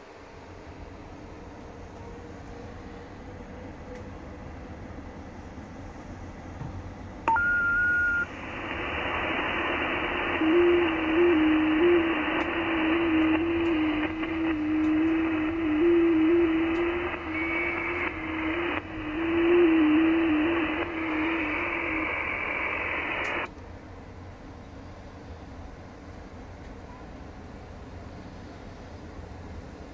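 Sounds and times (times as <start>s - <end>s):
radio band noise hiss: 7.2s - 23.5s
short steady beep: 7.3s - 8.3s.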